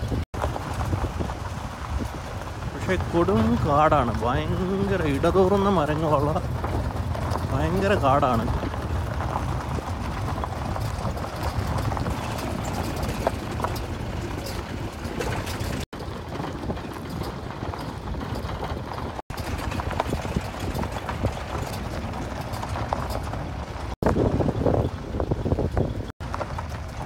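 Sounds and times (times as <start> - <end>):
knocks and rattles from bumps: 0.0 - 27.0
vehicle engine and road rumble: 0.0 - 27.0.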